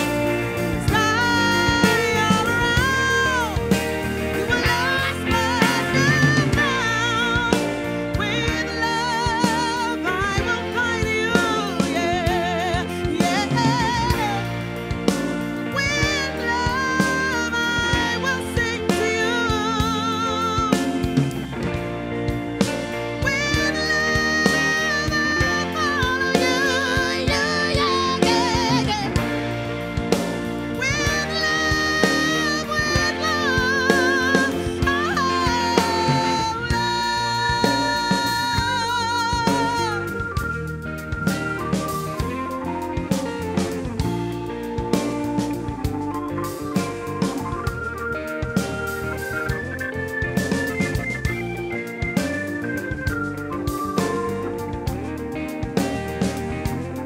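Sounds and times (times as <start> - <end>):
bass guitar: 0.0 - 57.0
drum kit: 0.0 - 57.0
electric guitar: 0.0 - 57.0
soul-rock band playing live: 0.0 - 57.0
woman singing with vibrato: 0.6 - 21.3, 23.2 - 29.8, 30.8 - 40.4.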